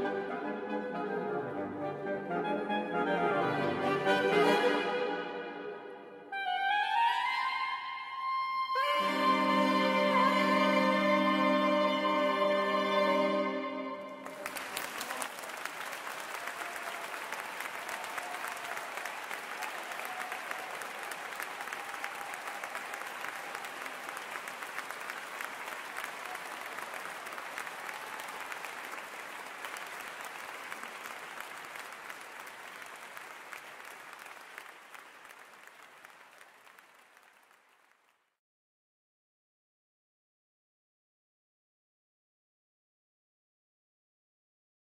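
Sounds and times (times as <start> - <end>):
audience applauding: 14.0 - 38.4.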